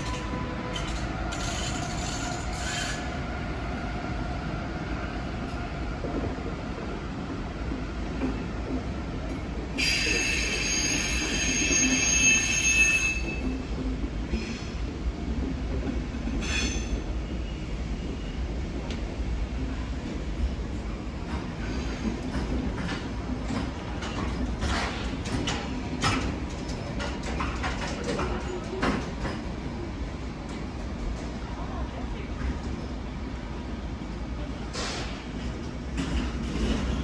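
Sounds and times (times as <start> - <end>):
train wheels squealing: 0.0 - 3.2, 9.8 - 13.7, 16.3 - 18.4
train rumbling on rails: 0.0 - 37.0.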